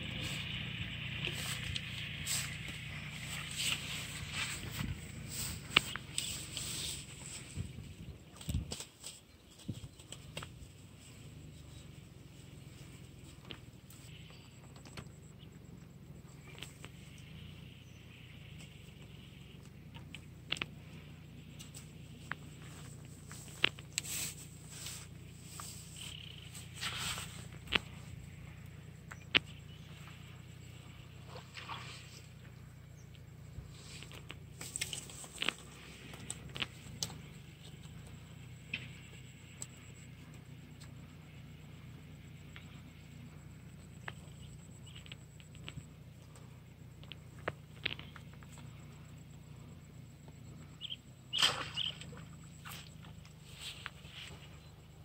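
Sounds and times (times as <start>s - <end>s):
rustling in dry grass: 0.0s - 14.4s, 20.4s - 38.7s, 50.8s - 55.0s
faint low hum: 0.0s - 55.0s.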